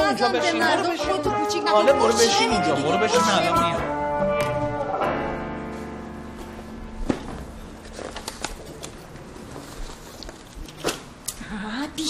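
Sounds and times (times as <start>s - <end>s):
paper sheets rustling: 7.0s - 11.0s.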